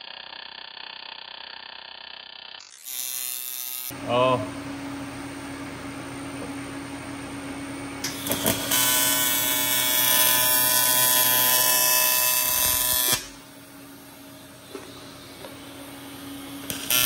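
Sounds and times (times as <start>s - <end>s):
welding arc crackling: 0.0s - 3.9s, 8.0s - 17.0s
welding arc buzzing: 0.0s - 17.0s.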